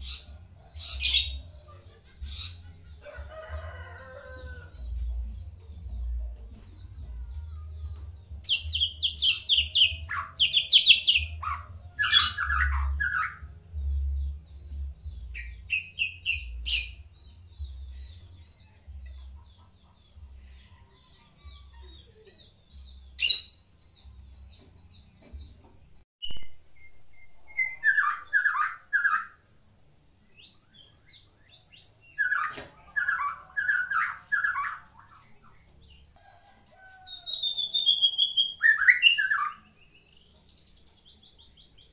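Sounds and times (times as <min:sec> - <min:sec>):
songbird singing varied phrases: 0:06.7 - 0:18.8, 0:26.2 - 0:41.9.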